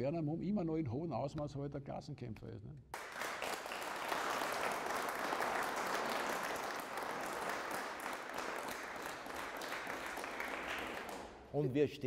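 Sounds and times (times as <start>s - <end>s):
audience applauding: 3.0s - 11.5s.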